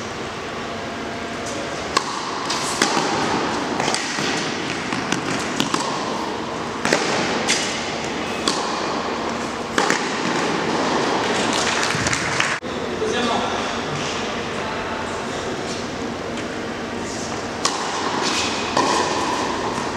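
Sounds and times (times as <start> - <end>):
steady hall hiss: 0.0 - 19.9
racket hitting tennis ball: 1.4 - 12.6, 17.3 - 19.9
ball bounces: 1.9 - 6.2, 6.8 - 9.0, 9.7 - 12.3.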